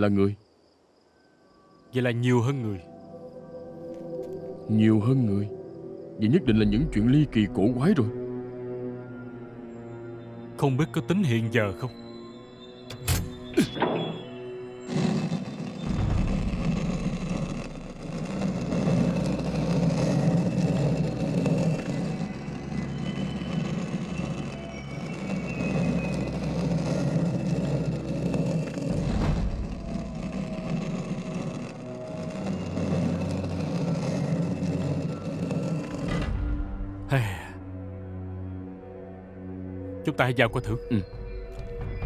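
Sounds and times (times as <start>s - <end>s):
stone slab grinding: 14.8s - 36.4s.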